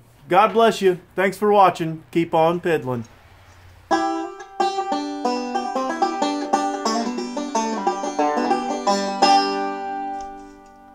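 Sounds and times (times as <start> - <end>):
plucked string music: 3.9 - 10.9.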